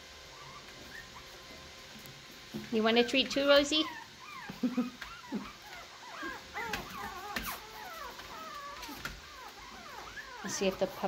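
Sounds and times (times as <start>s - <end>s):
dogs whimpering: 0.3s - 1.7s, 3.7s - 11.0s.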